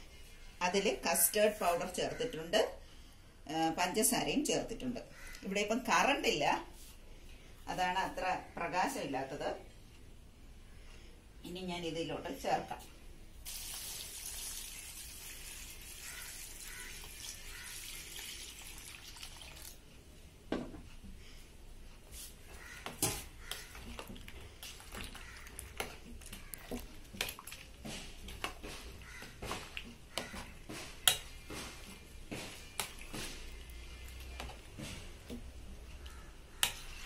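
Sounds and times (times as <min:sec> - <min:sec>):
spoon stirring in steel bowl: 0:22.4 - 0:37.0.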